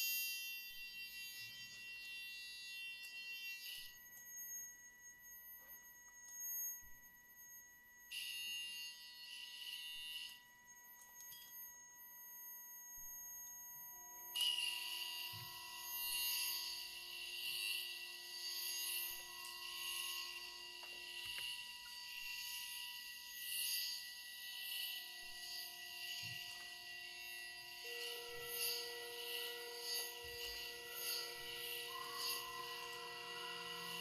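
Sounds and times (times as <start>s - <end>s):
high sine tones: 25.4s - 34.0s
shrill high-pitched buzzing: 27.2s - 34.0s.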